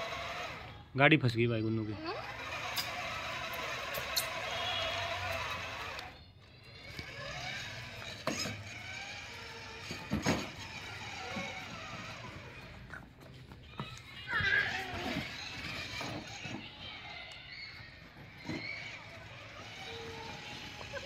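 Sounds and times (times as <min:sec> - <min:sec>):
toy car motors whirring: 0:00.0 - 0:00.9, 0:01.6 - 0:21.0.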